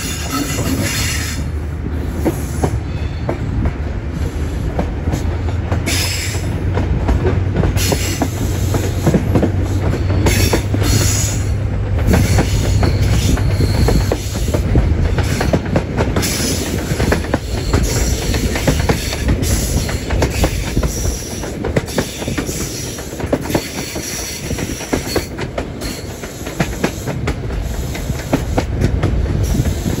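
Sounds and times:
train wheels rumbling on rail: 0:00.0 - 0:30.0
high wheel squeals: 0:09.8 - 0:14.6, 0:16.2 - 0:26.4.

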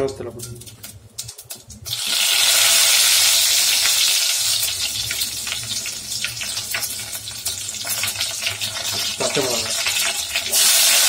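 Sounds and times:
crackling pops of frying: 0:00.0 - 0:11.0
leaves sizzling in hot oil: 0:00.0 - 0:11.0.

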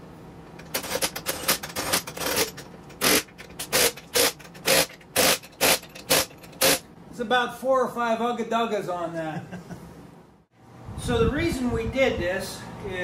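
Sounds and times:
impact wrench hammering: 0:00.6 - 0:06.8.

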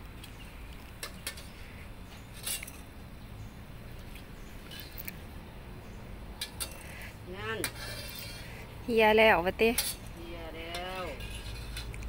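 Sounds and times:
low steady hum: 0:00.0 - 0:12.0
metal spatula scraping wok: 0:06.4 - 0:08.8, 0:09.6 - 0:12.0.

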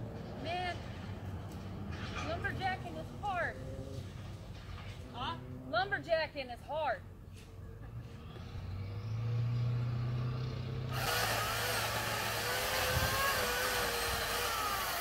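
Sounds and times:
chainsaw low hum: 0:08.1 - 0:15.0
chainsaw cutting wood: 0:10.9 - 0:15.0.

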